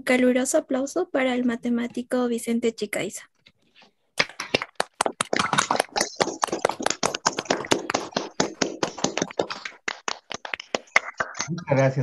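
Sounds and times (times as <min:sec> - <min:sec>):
people clapping: 0:04.2 - 0:12.0.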